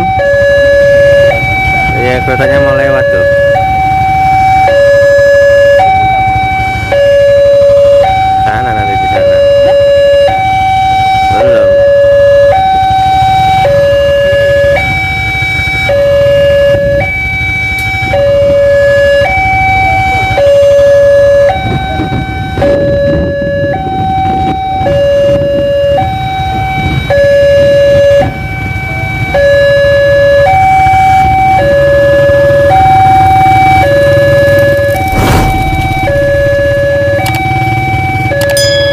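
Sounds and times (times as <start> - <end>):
level crossing two-tone alarm: 0.0 - 38.9
low engine rumble: 30.7 - 38.9.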